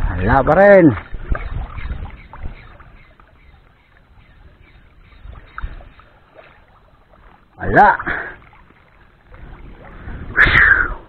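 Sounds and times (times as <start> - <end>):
wind rumble on microphone: 0.0 - 3.6, 4.2 - 6.0, 8.7 - 11.0
seawater lapping and sloshing: 0.6 - 11.0
water splash: 0.8 - 4.1, 5.3 - 11.0.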